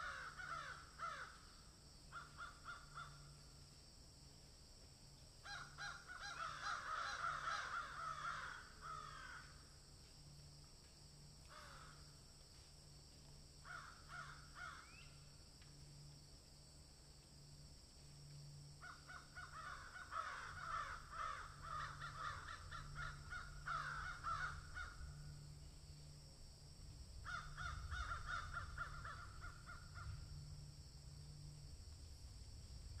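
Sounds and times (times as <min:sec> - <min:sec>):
faint low hum: 0:00.0 - 0:33.0
raspy pulsing animal calls: 0:18.8 - 0:25.2.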